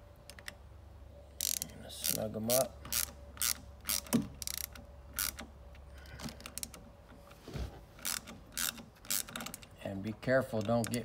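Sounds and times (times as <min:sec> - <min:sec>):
hand ratchet clicking: 0:01.4 - 0:05.5, 0:08.0 - 0:09.8.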